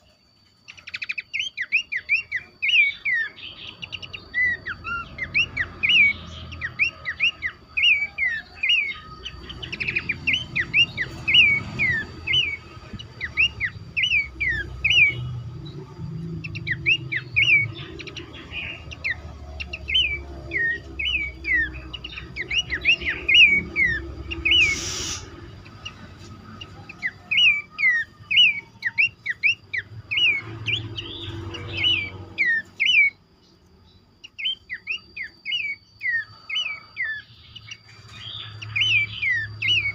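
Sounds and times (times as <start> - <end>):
birds chirping in chorus: 0.0 - 39.9
brief hiss: 24.6 - 25.4.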